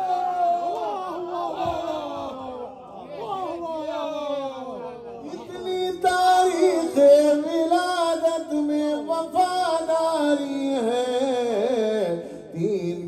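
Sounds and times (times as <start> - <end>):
man singing ornamented melody: 5.2 - 13.0.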